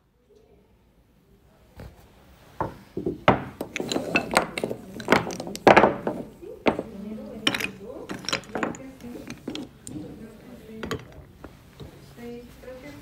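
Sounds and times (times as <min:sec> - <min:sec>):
wooden tools knocking: 0:02.6 - 0:11.6.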